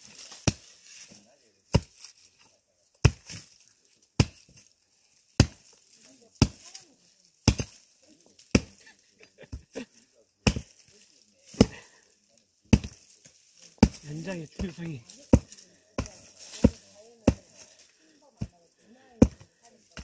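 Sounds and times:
pickaxe striking soil: 0.0s - 2.2s, 3.0s - 3.6s, 4.2s - 4.7s, 5.4s - 5.8s, 6.4s - 6.6s, 7.4s - 8.8s, 10.4s - 10.9s, 11.5s - 12.0s, 12.7s - 17.8s, 19.2s - 20.0s.

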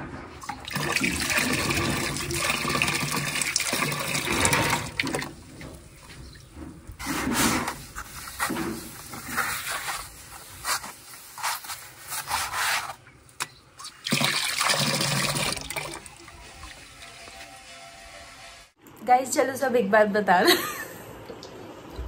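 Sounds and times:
water splashing: 13.8s - 17.3s.

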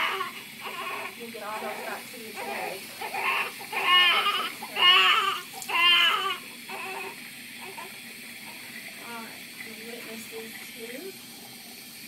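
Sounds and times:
baby crying: 0.0s - 7.9s
running tap water: 0.0s - 12.0s.

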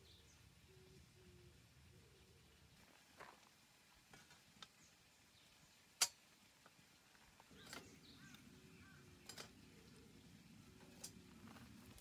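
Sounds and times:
light metal clicks: 9.2s - 9.6s.

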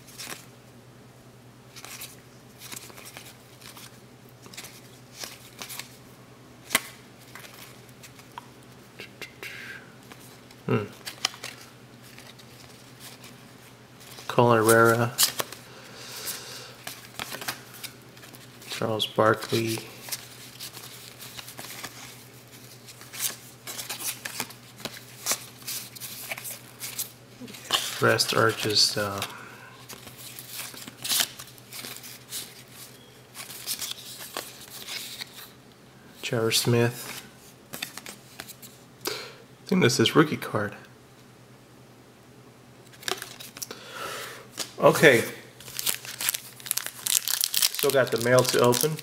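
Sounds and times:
low steady hum: 0.0s - 49.0s
cards sliding against cards: 14.8s - 18.4s.

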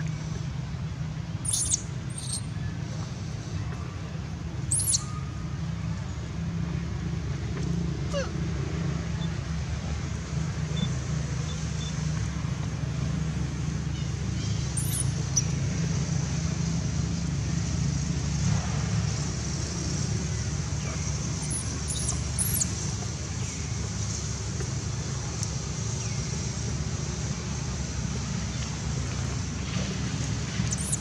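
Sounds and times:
low outdoor rumble: 0.0s - 31.0s
high-pitched chirps: 1.5s - 2.4s, 4.7s - 5.1s, 14.8s - 15.1s, 30.7s - 31.0s.

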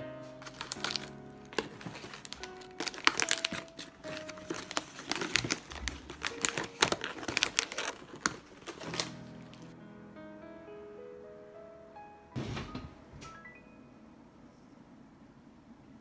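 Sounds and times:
plastic bags crinkling: 0.3s - 9.7s.

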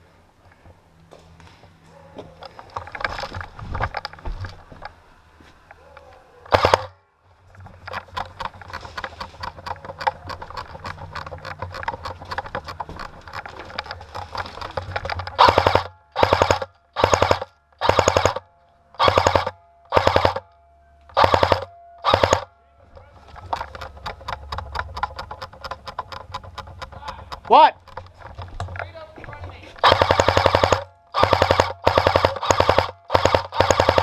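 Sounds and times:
airsoft gun full-auto bursts: 6.5s - 6.9s, 15.3s - 18.4s, 19.0s - 20.4s, 21.1s - 22.5s, 29.8s - 34.0s
quiet rapid ticking gunfire: 6.5s - 6.9s, 15.3s - 18.4s, 19.0s - 20.5s, 21.1s - 22.5s, 29.8s - 34.0s.

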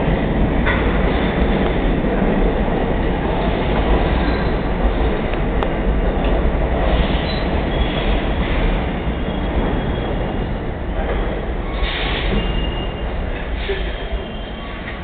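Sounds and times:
train wheels rumbling on rail: 0.0s - 15.0s
train wheel squeals: 4.1s - 4.6s, 7.0s - 10.4s, 11.0s - 15.0s.

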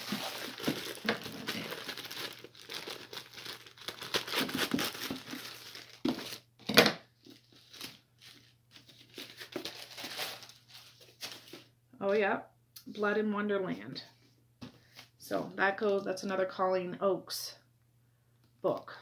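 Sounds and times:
plastic mailer crinkling: 0.0s - 6.5s, 7.3s - 11.6s.

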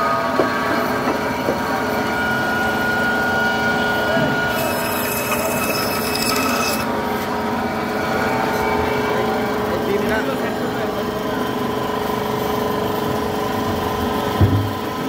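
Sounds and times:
band saw whining: 1.8s - 8.9s.

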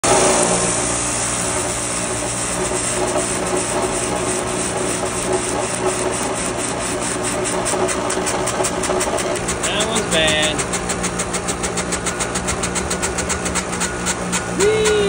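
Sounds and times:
wheel spinner motor hum: 0.0s - 15.0s
rhythmic ticking from spinning wheel: 8.9s - 15.0s.

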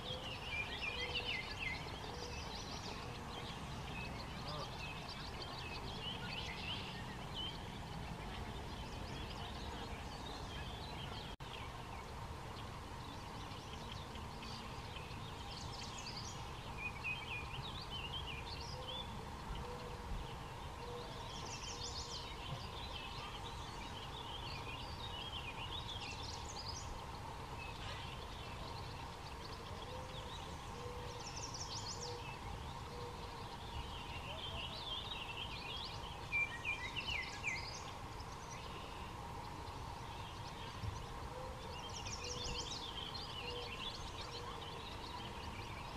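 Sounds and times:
songbirds chirping: 0.0s - 45.9s.

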